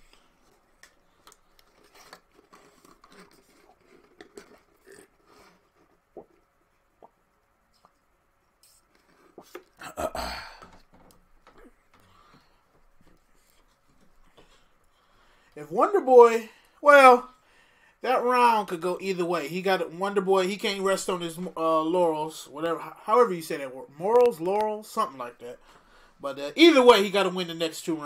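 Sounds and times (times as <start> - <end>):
person rustling and handling things: 0.0 - 9.8, 10.6 - 15.6.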